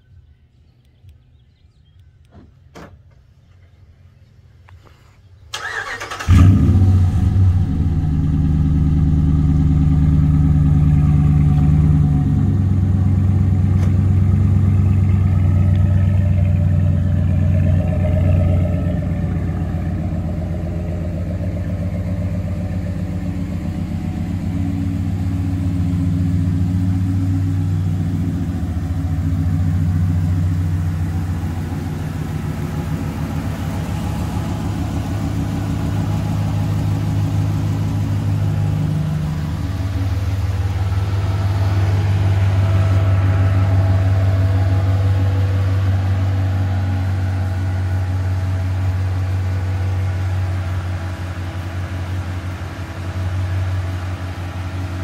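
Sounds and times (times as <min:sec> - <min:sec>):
engine starter cranking: 0:05.5 - 0:06.8
engine idling: 0:05.6 - 0:55.0
engine revving: 0:05.6 - 0:55.0.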